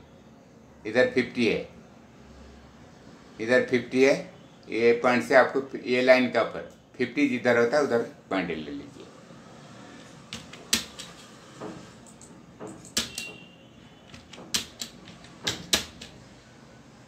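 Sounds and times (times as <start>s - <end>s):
computer keyboard keystrokes: 10.3s - 11.2s, 12.0s - 13.4s, 14.1s - 16.2s.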